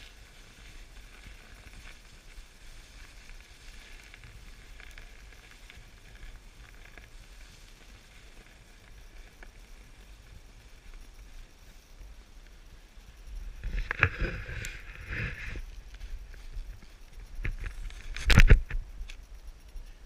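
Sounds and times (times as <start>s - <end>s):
snowboard scraping over snow: 0.0s - 18.7s
wind rumbling on microphone: 0.0s - 20.0s.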